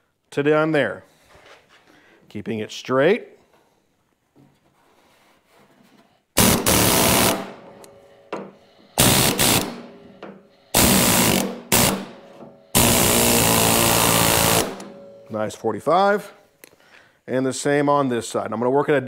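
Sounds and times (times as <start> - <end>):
pneumatic tool hammering: 6.4 - 15.3.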